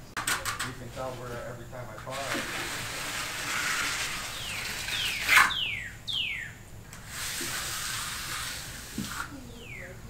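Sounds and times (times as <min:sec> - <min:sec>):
trowel scraping wet concrete: 0:02.1 - 0:05.6, 0:07.1 - 0:09.3
bird whistling: 0:04.3 - 0:06.6, 0:09.5 - 0:10.0.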